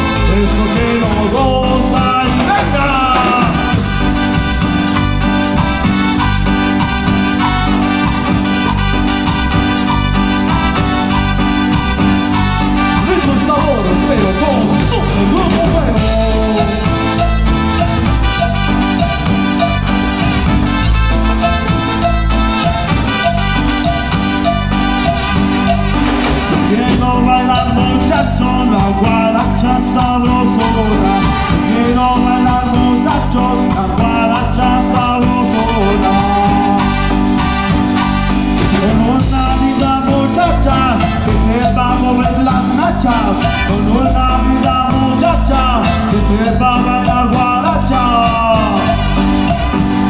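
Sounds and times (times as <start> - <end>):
person singing: 0.0 - 4.0, 13.0 - 19.8, 26.4 - 37.3, 38.7 - 50.0
live band playing dance music: 0.0 - 50.0.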